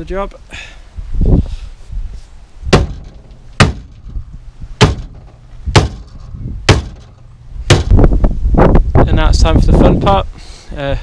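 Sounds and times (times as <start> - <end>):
hammer striking steel: 4.8 - 8.0.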